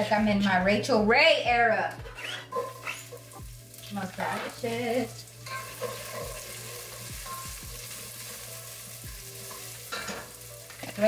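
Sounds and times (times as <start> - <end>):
food sizzling in a pan: 2.2 - 11.0.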